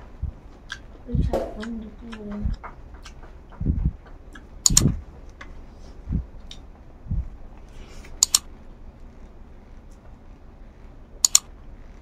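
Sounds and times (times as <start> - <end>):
thumps and clicks: 0.2 - 7.3
mouth clicks: 0.6 - 5.5, 6.1 - 8.5, 11.2 - 11.5.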